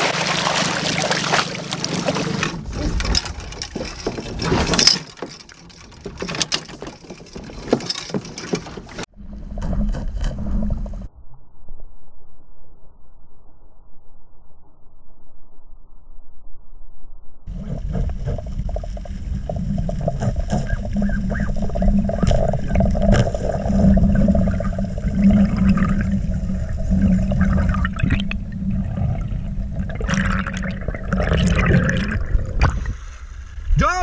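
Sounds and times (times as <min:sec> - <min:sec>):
underwater rumble: 0:09.1 - 0:33.8.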